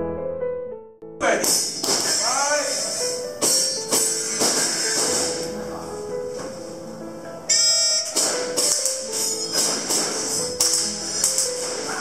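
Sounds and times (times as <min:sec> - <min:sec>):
held melody: 0:01.0 - 0:12.0
percussion hits: 0:01.3 - 0:05.5, 0:07.7 - 0:12.0.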